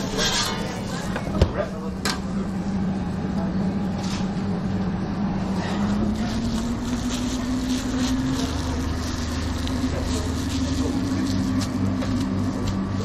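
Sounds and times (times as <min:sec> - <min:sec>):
low machine hum: 0:00.0 - 0:13.0
plastic gloves crinkling: 0:05.8 - 0:13.0.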